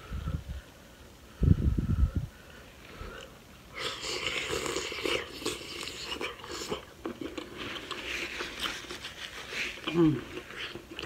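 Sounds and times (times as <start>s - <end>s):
wet chewing of shrimp: 3.1s - 11.0s.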